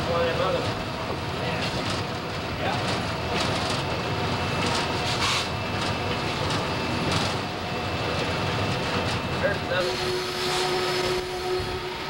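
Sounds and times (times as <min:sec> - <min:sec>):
cab rattles: 0:00.0 - 0:09.6
locomotive engine drone: 0:00.0 - 0:12.0
wheels on rails: 0:00.0 - 0:12.0.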